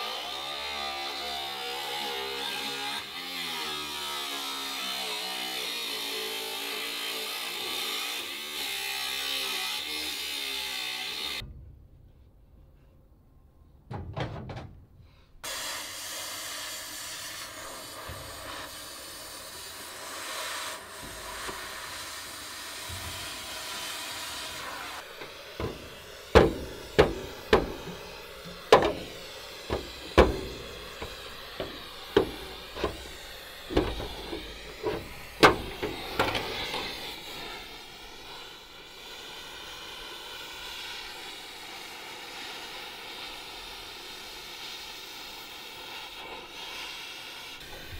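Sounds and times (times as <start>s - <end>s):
sharp metal knocks: 13.8s - 15.1s, 25.1s - 37.0s
gas torch hissing: 15.4s - 47.9s.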